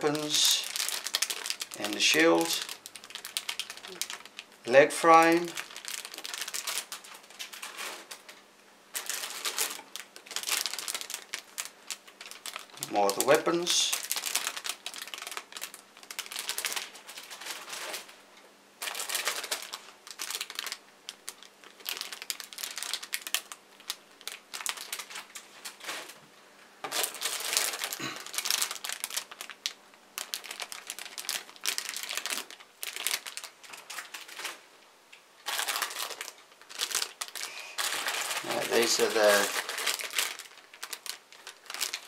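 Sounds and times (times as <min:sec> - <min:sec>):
plastic bags crinkling: 0:00.0 - 0:18.2, 0:18.8 - 0:26.2, 0:26.8 - 0:34.6, 0:35.4 - 0:42.0.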